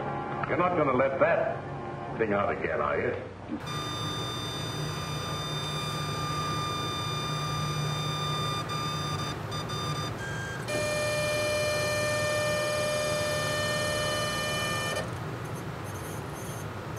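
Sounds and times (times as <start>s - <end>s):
stepper motors whining: 3.6s - 16.9s.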